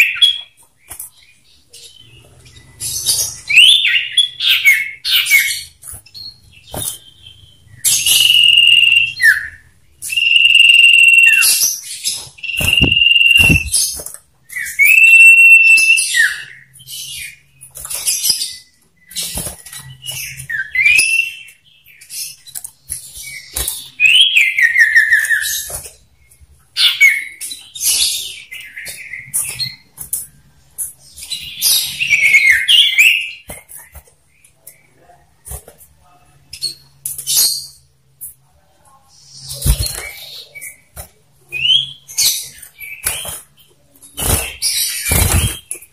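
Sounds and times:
bird whistles and chirps: 7.8s - 17.3s
rapid bird chattering: 12.5s - 14.0s.

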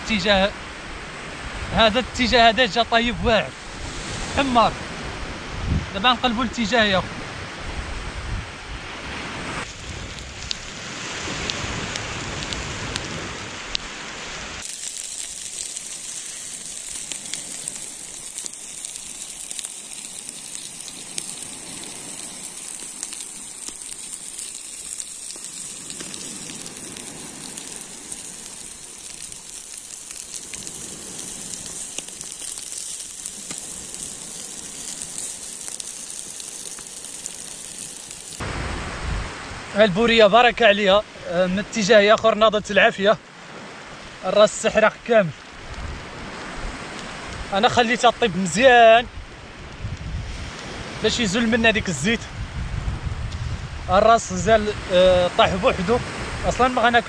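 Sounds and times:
fish fat sizzling over fire: 3.5s - 5.1s, 8.8s - 38.9s, 43.3s - 52.2s, 53.3s - 57.0s
fire crackling and popping: 9.1s - 38.6s, 45.4s - 52.2s.

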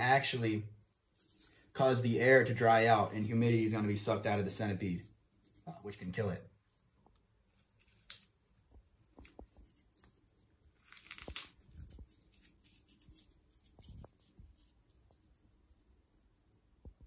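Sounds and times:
hands rustling dry leaves and moss: 7.5s - 16.8s.

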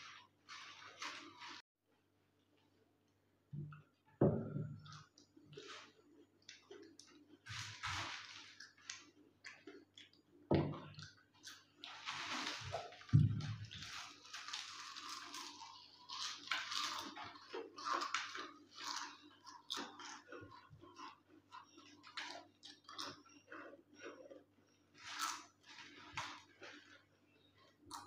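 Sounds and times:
potato chips crunching: 13.6s - 23.6s.

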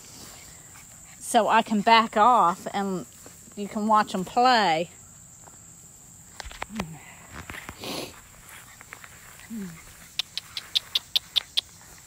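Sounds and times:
scuffling and rustling in grass: 0.0s - 12.0s
high puppy chirps: 9.7s - 12.0s.

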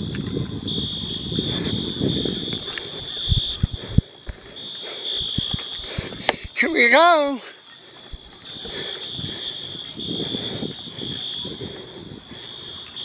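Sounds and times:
wind rumbling on microphone: 0.0s - 6.6s, 8.0s - 13.0s
distant fire alarm horns: 0.0s - 13.0s.

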